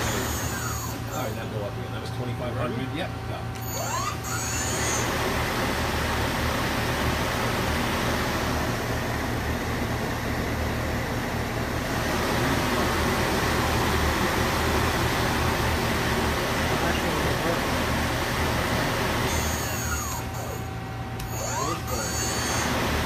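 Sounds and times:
lathe spindle whirring: 0.0 - 23.0.

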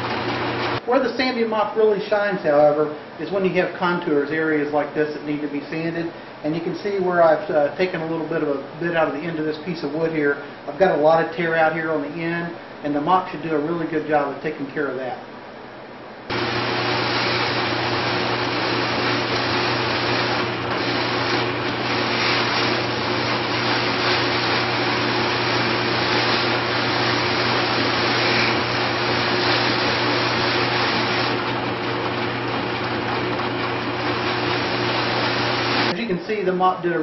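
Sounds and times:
drill press motor hum: 0.0 - 0.8, 16.3 - 35.9
sanding flaps rasping on wood: 17.1 - 31.4.

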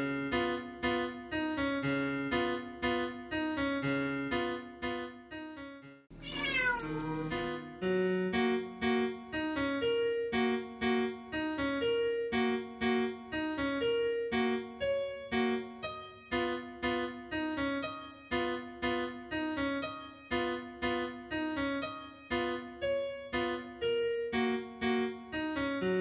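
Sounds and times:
background piano music: 0.0 - 26.0
cat meowing: 6.2 - 7.5.

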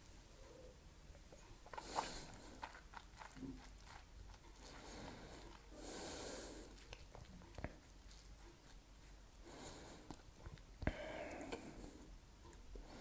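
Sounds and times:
breathy exhale: 10.9 - 12.1.

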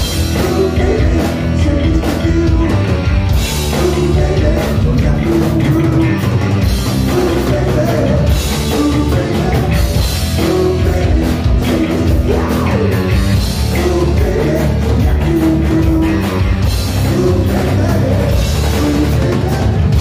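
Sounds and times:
distorted electric guitar: 0.0 - 20.0
drum kit: 0.0 - 20.0.

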